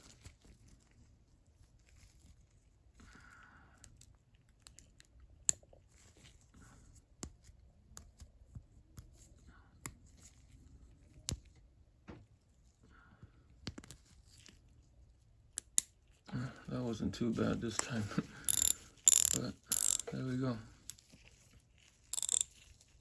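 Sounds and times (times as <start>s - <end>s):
gloves rustling: 0.0s - 3.4s, 4.0s - 23.0s
small metal clicks and scrapes: 17.8s - 23.0s.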